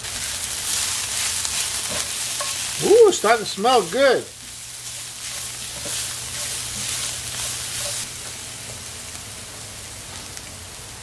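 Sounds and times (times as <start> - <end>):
vegetables sizzling in oil: 0.0 - 11.0
spatula stirring in a pot: 0.1 - 2.9, 3.7 - 8.8.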